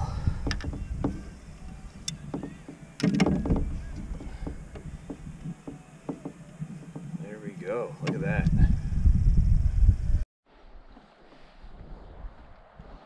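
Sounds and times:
fishing gear knocking on canoe hull: 0:00.3 - 0:07.2
low rumble: 0:08.2 - 0:10.9.

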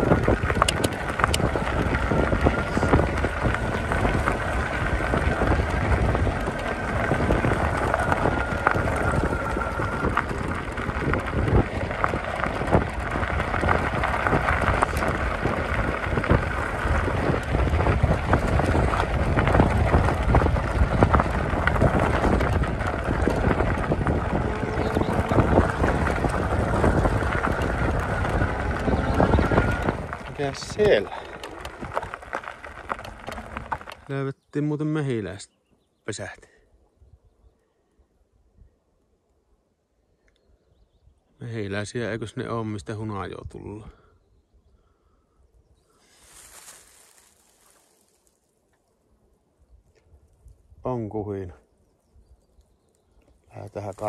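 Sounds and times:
bike tyres crunching gravel: 0:00.0 - 0:34.4, 0:45.8 - 0:49.2, 0:52.2 - 0:54.0
wind buffeting microphone: 0:00.0 - 0:34.4.

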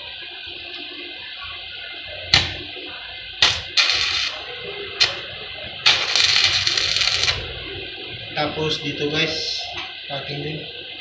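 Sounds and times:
welding arc sizzling: 0:02.3 - 0:10.9
welding arc crackling: 0:03.4 - 0:07.8
steady hiss: 0:05.8 - 0:07.4.

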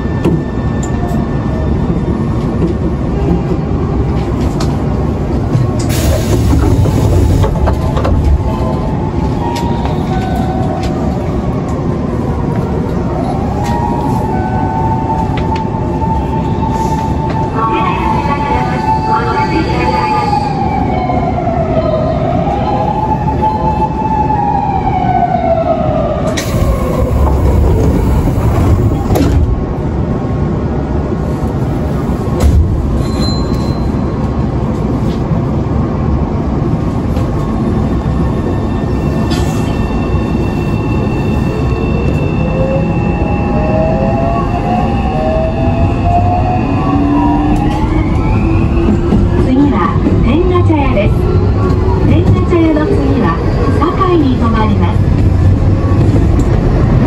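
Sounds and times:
train wheels rumbling: 0:00.0 - 0:21.4, 0:24.1 - 0:57.0
wheel and track rumble: 0:00.1 - 0:13.9, 0:26.2 - 0:38.6.

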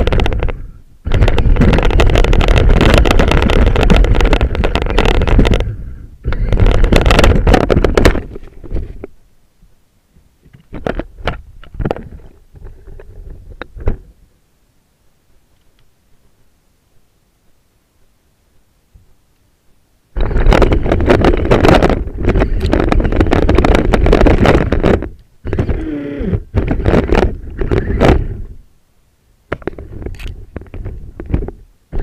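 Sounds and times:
rc truck rumbling: 0:00.0 - 0:09.1, 0:20.2 - 0:28.6
sharp clicks and knocks: 0:00.0 - 0:09.2, 0:10.2 - 0:14.1, 0:20.2 - 0:28.5, 0:29.5 - 0:32.0.

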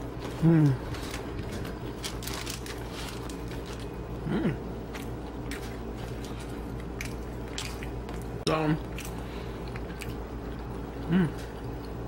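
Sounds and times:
steady low hum: 0:00.0 - 0:12.0
crust and paper crackling: 0:00.2 - 0:04.0.

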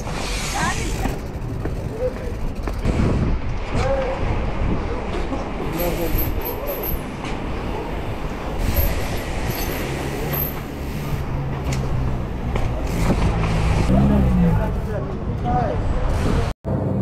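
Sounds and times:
bike rattling over bumps: 0:00.0 - 0:03.8
bike tyres rolling on asphalt: 0:00.0 - 0:05.0, 0:05.6 - 0:13.9
wind on microphone: 0:00.0 - 0:05.2
traffic engine hum: 0:00.0 - 0:17.0.

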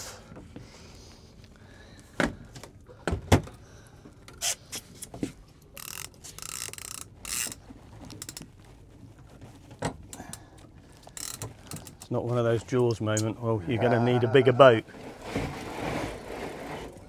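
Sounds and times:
fishing reel knocks and clicks: 0:05.8 - 0:08.4, 0:11.2 - 0:12.1.

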